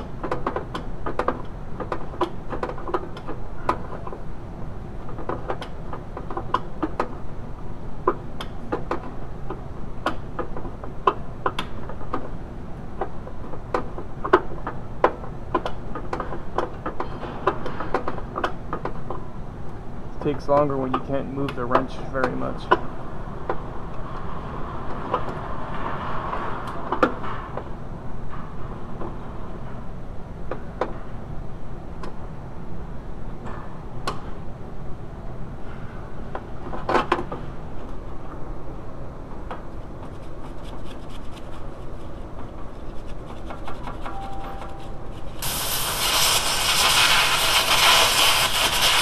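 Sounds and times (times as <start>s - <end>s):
solvent stream hissing: 45.4s - 49.0s.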